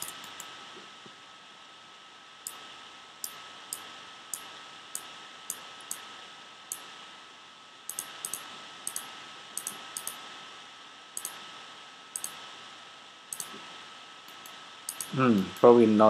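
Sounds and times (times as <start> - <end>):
computer mouse clicking: 0.0 - 0.5, 3.2 - 6.0, 7.9 - 10.2, 11.2 - 11.4, 12.2 - 12.4, 13.3 - 13.6, 14.3 - 15.2
faint steady tone: 0.0 - 16.0
steady hiss: 0.0 - 16.0.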